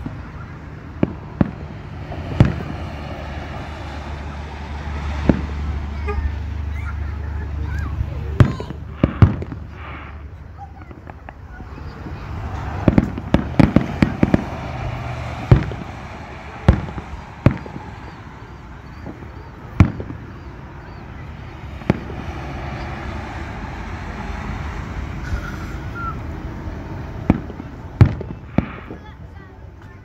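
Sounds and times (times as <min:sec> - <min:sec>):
firework shells bursting: 0:08.4 - 0:20.9.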